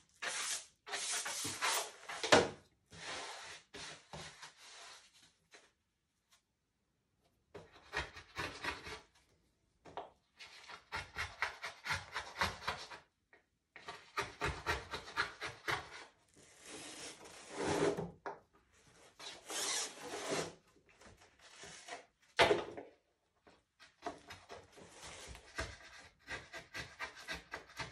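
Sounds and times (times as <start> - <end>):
pencil scratching on wood: 7.7 - 9.1, 24.9 - 27.9.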